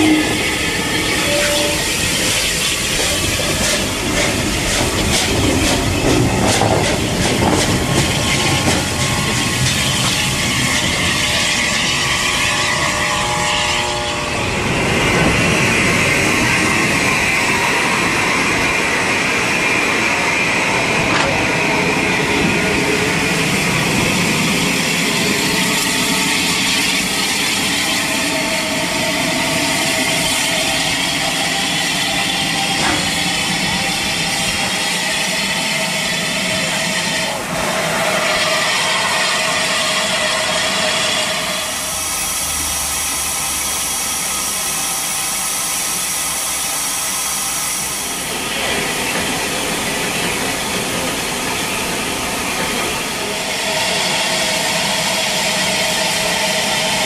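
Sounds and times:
steam hissing from locomotive: 0.0 - 57.0.

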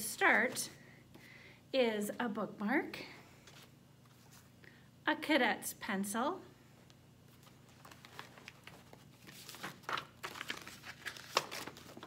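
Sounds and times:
paper rustling and crinkling: 7.3 - 12.0.

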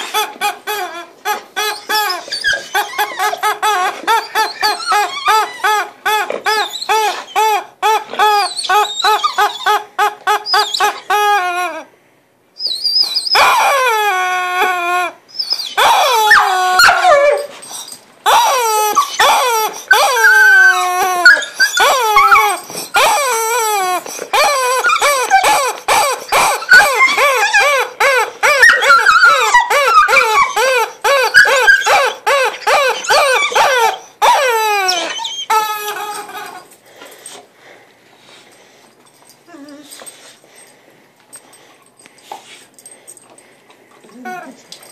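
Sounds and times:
rubber squeeze toy squealing: 0.0 - 11.9, 12.6 - 17.4, 18.3 - 36.7.

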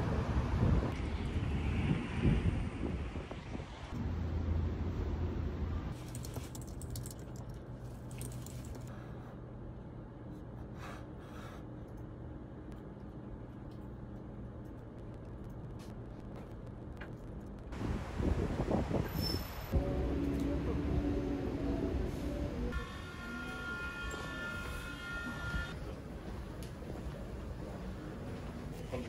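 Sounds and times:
street noise: 0.0 - 10.5, 11.7 - 29.0
wind: 0.0 - 29.0
low hum: 19.7 - 28.8.

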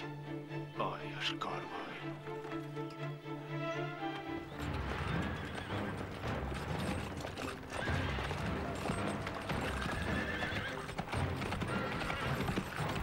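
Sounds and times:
hooves pounding on dirt: 3.9 - 13.0
horse neighing: 4.6 - 6.1, 7.4 - 12.9.

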